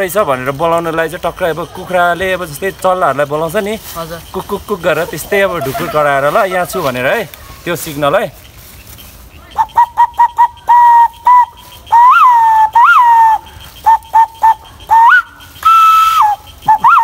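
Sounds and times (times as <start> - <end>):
person whistling: 9.6 - 17.0.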